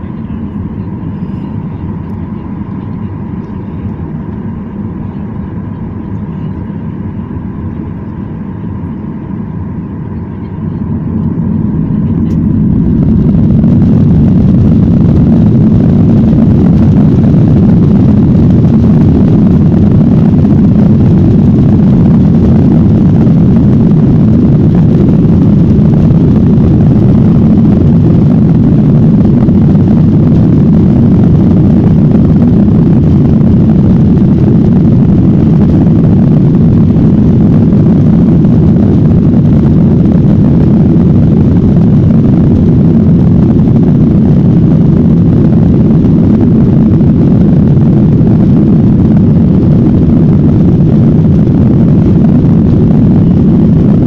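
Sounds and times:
jet engines in cabin: 0.0 - 54.0.

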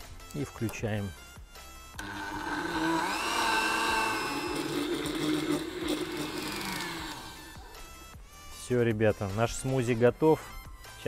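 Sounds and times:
blender motor whine: 2.0 - 8.0.

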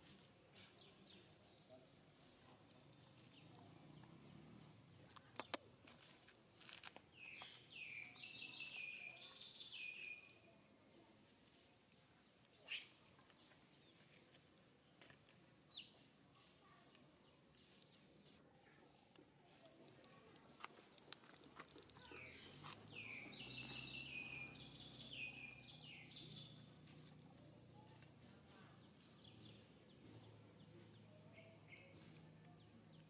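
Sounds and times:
sharp clicks: 5.1 - 5.6.

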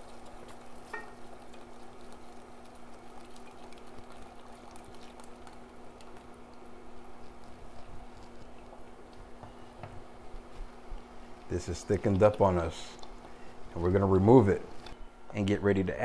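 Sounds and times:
liquid pouring into saucepan: 0.0 - 9.0
wooden spoon stirring sauce: 0.0 - 14.9.

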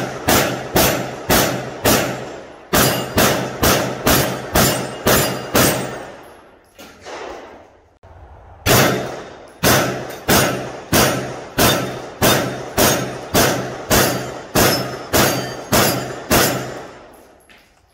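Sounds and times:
carbine gunshots: 0.0 - 6.2, 8.7 - 17.1
steel target ringing: 2.2 - 6.6, 8.7 - 17.4.

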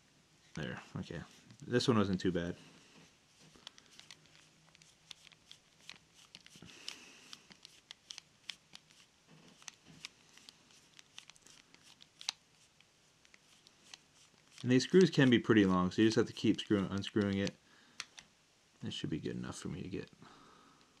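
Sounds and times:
screwdriver clicks and scrapes: 3.6 - 6.6.

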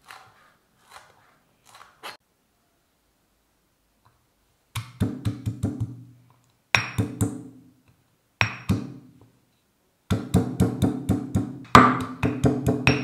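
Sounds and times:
stone pestle pounding in mortar: 4.8 - 6.0, 6.8 - 7.5, 8.4 - 9.0, 10.1 - 13.0.

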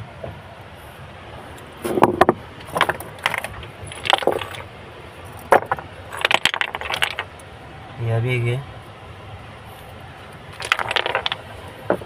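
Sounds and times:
river stones clattering: 1.8 - 7.6, 10.4 - 12.0.

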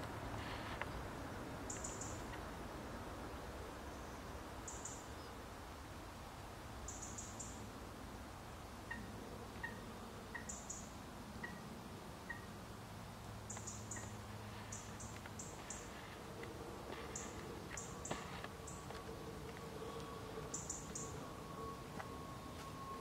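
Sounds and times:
faint outdoor background noise: 0.0 - 23.0
small birds chirping: 1.7 - 2.4, 3.9 - 5.4, 8.9 - 11.6, 13.4 - 16.2, 16.9 - 22.9.

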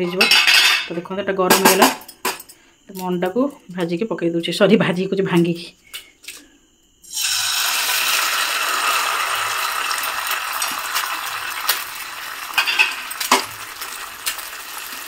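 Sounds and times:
eggs sizzling in hot oil: 7.0 - 15.0.

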